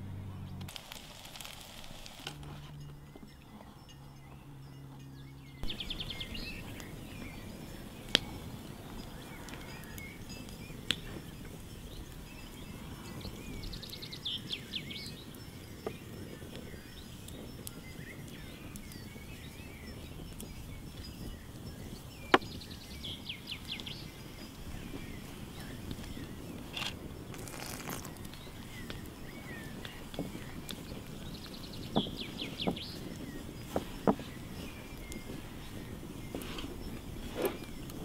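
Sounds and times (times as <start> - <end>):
low hum changing pitch: 0.0 - 0.7
birds trilling: 2.7 - 38.0.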